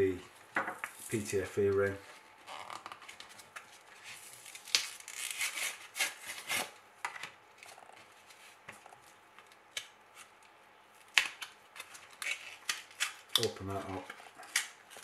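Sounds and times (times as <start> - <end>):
blister pack crinkling: 11.0 - 15.0.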